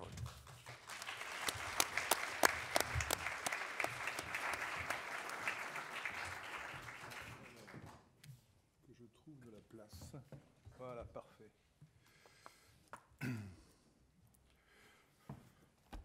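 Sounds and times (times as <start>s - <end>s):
audience applauding: 0.4s - 8.0s.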